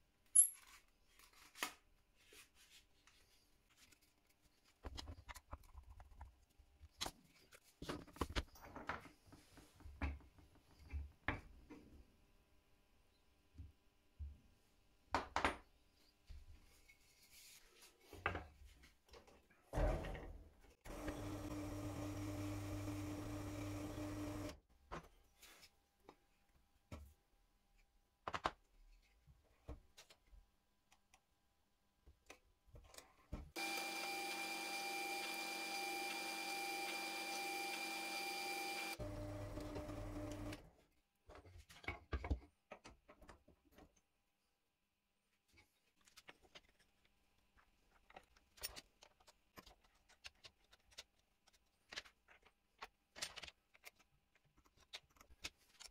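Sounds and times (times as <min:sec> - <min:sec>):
drill press motor humming: 0:20.9 - 0:24.6, 0:33.6 - 0:40.6.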